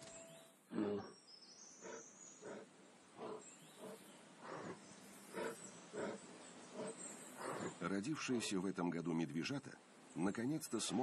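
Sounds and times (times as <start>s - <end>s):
bear grunting: 0.7s - 1.2s, 1.8s - 7.9s.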